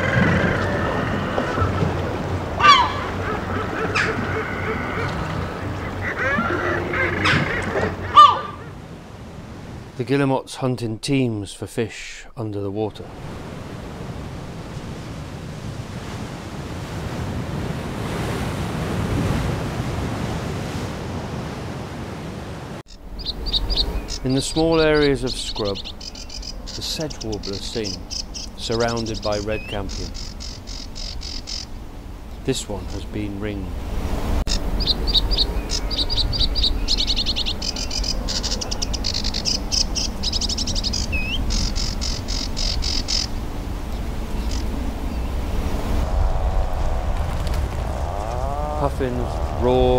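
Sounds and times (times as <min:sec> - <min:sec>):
wind buffeting microphone: 0:00.0 - 0:10.0, 0:13.0 - 0:49.9
sea surf washing: 0:00.0 - 0:49.9
warbler singing: 0:22.9 - 0:33.8, 0:34.5 - 0:45.6
steady low rumble: 0:23.0 - 0:49.9.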